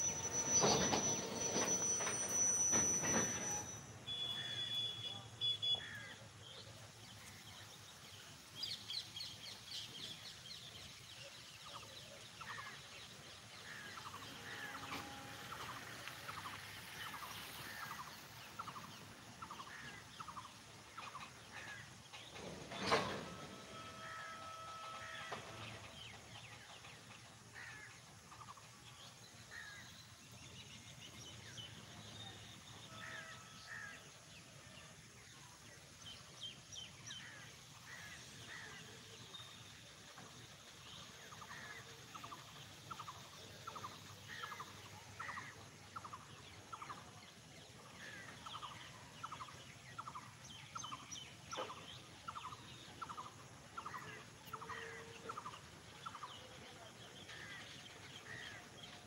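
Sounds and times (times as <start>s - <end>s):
freight wagons rumbling past: 0.0s - 5.3s, 6.4s - 59.0s
faint high chirps or squeaks: 0.0s - 5.9s.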